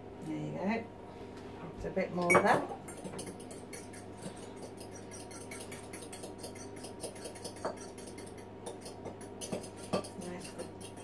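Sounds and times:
fork beating egg in cup: 2.4 - 11.0.

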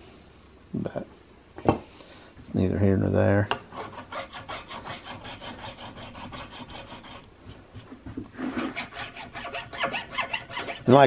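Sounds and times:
hand file rasping on brass: 3.7 - 7.3, 8.5 - 11.0.

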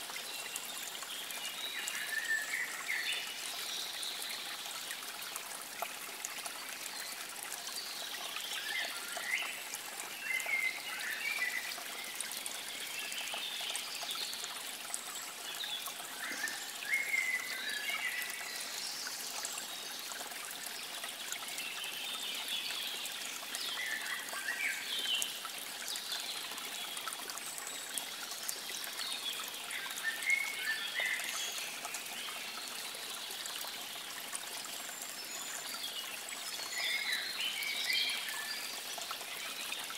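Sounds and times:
water gurgles: 0.0 - 39.9
water trickling: 0.0 - 39.9.

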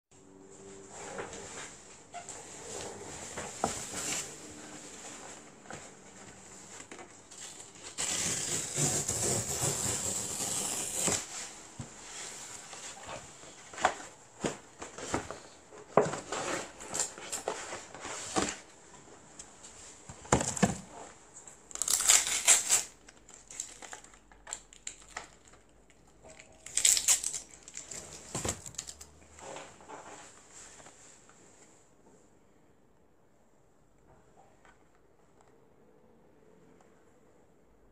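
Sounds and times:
packaging crinkling and rustling: 20.1 - 30.1.

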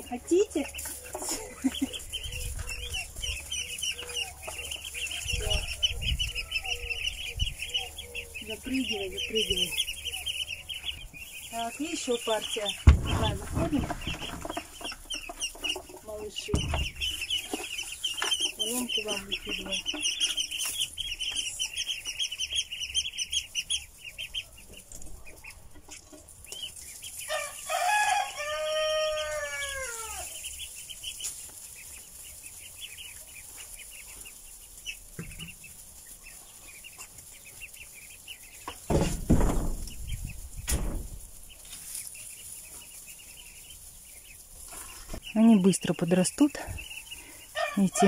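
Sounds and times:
ducklings peeping: 0.0 - 48.0
rustling bumps: 8.4 - 22.8, 30.7 - 43.2
rooster crowing: 27.3 - 30.4.

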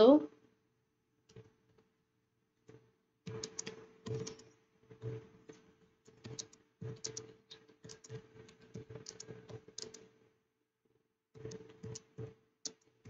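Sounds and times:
computer keyboard typing: 3.3 - 10.2, 11.4 - 13.0.

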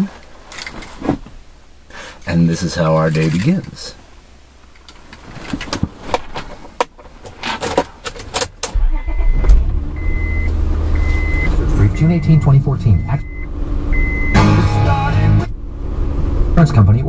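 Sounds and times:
car engine running: 8.7 - 17.0
dashboard warning chime: 8.9 - 15.4.

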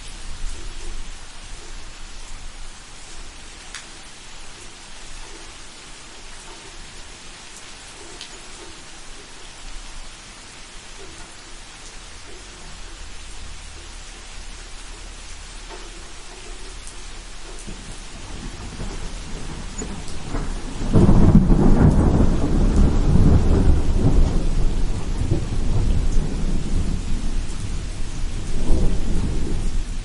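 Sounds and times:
steady rain: 0.0 - 30.0
thunder rumbling: 12.0 - 30.0.

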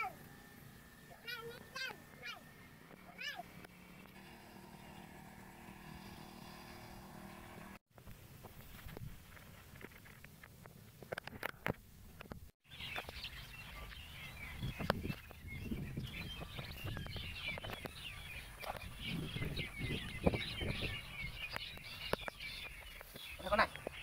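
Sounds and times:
small birds chirping: 0.0 - 7.8, 12.6 - 24.0.

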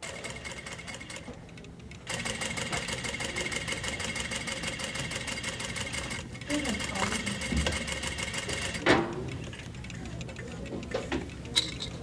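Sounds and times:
industrial sewing machine stitching: 0.0 - 1.3, 2.0 - 8.9.

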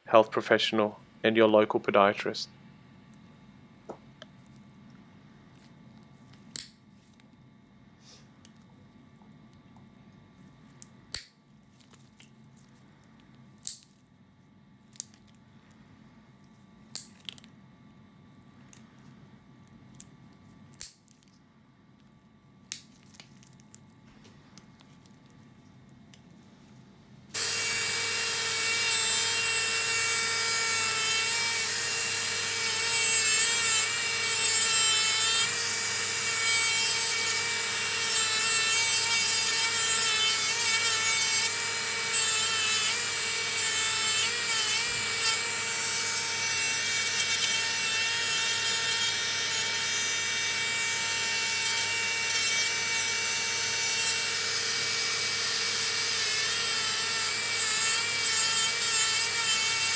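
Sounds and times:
nail drill grinding: 27.4 - 59.9.

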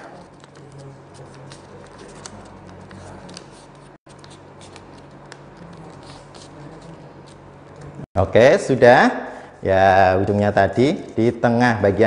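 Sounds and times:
paper folding and crinkling: 0.0 - 8.0
steady low hum: 0.0 - 12.0.

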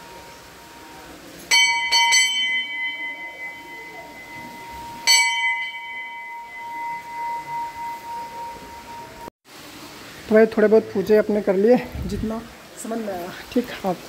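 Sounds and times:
temple bell ringing: 0.0 - 9.3.

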